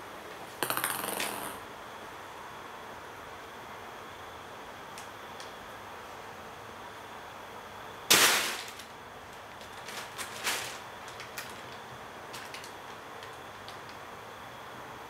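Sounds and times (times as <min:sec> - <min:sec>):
plastic bag crackling: 0:08.1 - 0:13.4.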